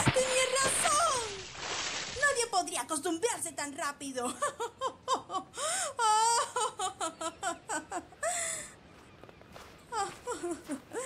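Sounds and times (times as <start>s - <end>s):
woman laughing: 4.2s - 8.7s, 9.9s - 11.0s.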